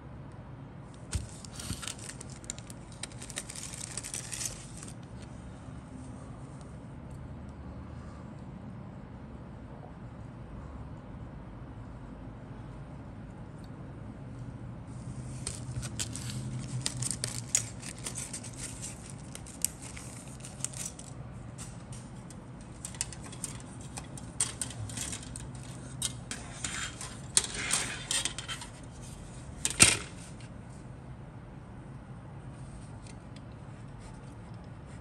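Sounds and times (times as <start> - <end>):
plastic sprues clicking: 22.6 - 28.7.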